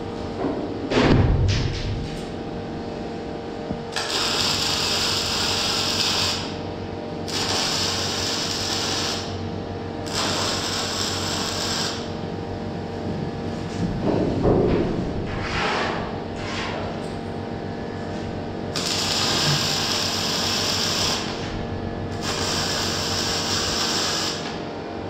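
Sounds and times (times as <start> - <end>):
steady hum: 0.0 - 25.0
arc welding crackling: 3.9 - 6.6, 7.2 - 9.4, 10.0 - 12.2, 18.6 - 24.6.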